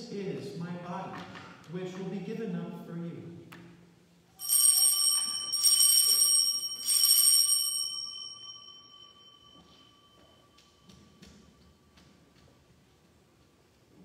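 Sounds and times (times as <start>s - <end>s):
altar bells jangling: 4.4s - 11.9s.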